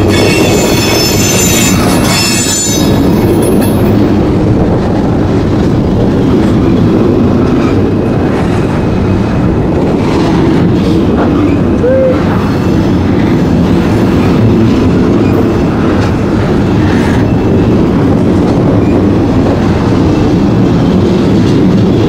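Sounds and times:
high wheel squeal: 0:00.0 - 0:03.2
train wheels rumbling on rails: 0:00.0 - 0:22.0.

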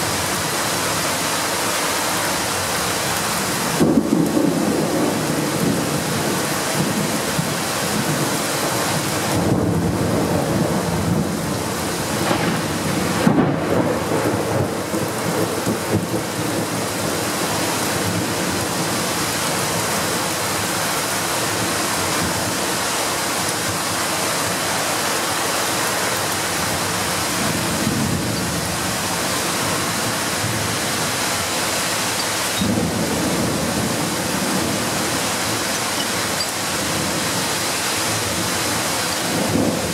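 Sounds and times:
heavy rain pouring: 0:00.0 - 0:39.9
thunder rumbling: 0:03.7 - 0:19.0, 0:32.1 - 0:39.9.

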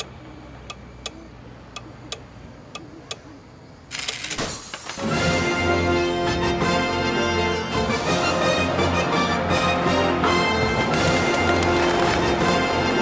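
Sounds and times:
clock ticking: 0:00.0 - 0:03.4
music: 0:05.0 - 0:13.0.

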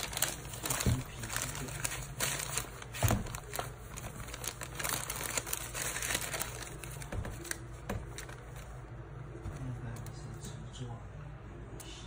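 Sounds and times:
paper crinkling and rustling: 0:00.0 - 0:08.8.

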